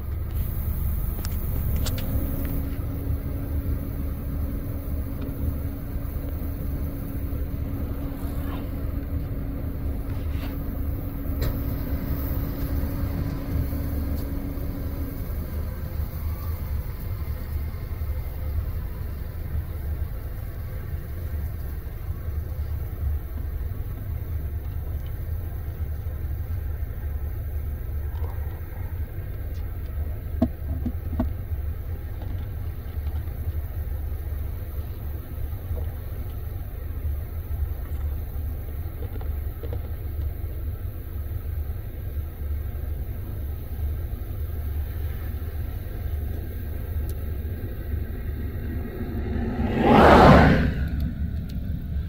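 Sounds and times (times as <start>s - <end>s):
combine harvester running: 0.0s - 52.0s
faint clicks: 50.8s - 51.7s.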